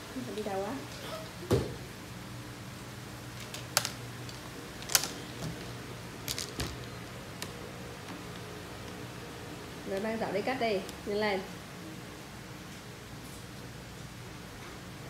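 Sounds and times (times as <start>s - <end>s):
plastic basket clicks and knocks: 3.4s - 5.6s, 6.3s - 7.6s.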